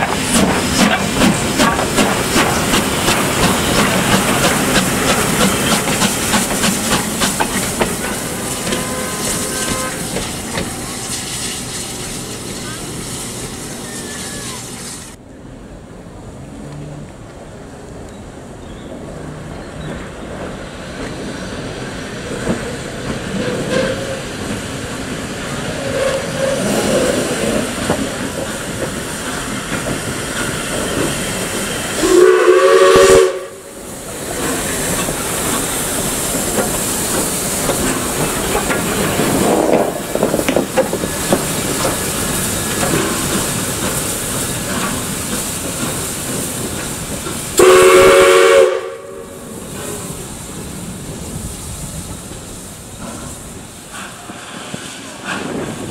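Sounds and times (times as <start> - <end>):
steam hissing from locomotive: 0.0 - 15.2, 20.6 - 55.9
steam locomotive moving slowly: 0.0 - 55.9
steam whistle blasts: 8.3 - 11.3, 25.8 - 27.0, 32.0 - 33.8, 47.6 - 49.4.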